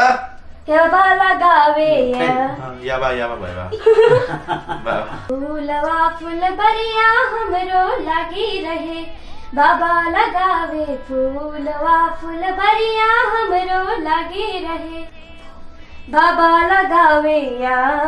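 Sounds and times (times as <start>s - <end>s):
person singing unaccompanied: 0.7s - 2.7s, 4.9s - 18.0s.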